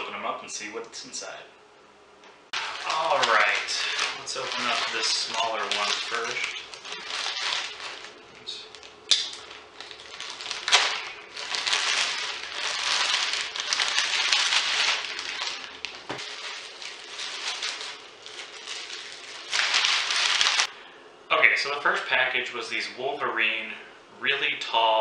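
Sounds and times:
plastic bag crinkling: 0:02.6 - 0:20.7
plastic mailer torn open: 0:02.6 - 0:20.7
sharp plastic snaps: 0:09.1 - 0:09.4.

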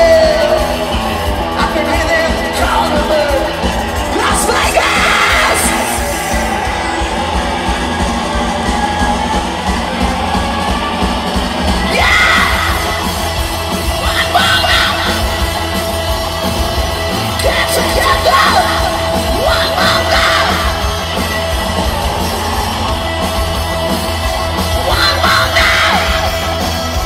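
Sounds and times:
punk rock band playing live: 0:00.0 - 0:27.0
singer yelling into microphone: 0:01.5 - 0:06.6, 0:11.8 - 0:15.6, 0:17.3 - 0:21.0, 0:24.7 - 0:26.7.

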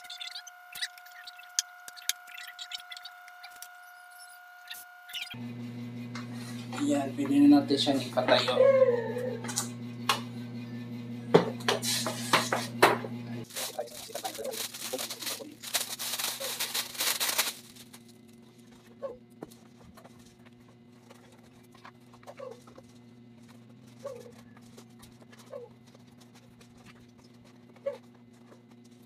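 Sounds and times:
steady low hum: 0:00.0 - 0:29.0
plastic wrap crinkling: 0:13.4 - 0:29.0.

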